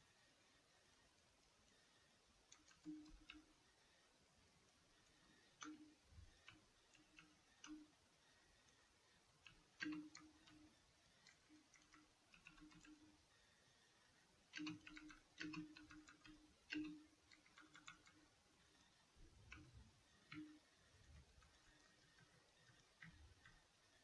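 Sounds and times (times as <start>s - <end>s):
computer keyboard typing: 2.5s - 3.5s, 9.4s - 13.2s, 14.5s - 18.3s, 20.3s - 23.6s.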